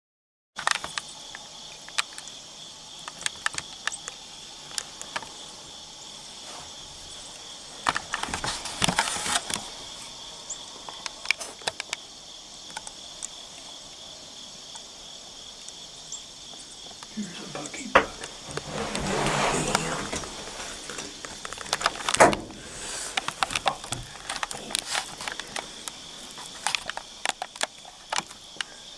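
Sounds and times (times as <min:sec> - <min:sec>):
crickets chirring: 0:00.6 - 0:28.9
sharp clicks and knocks: 0:20.9 - 0:28.7.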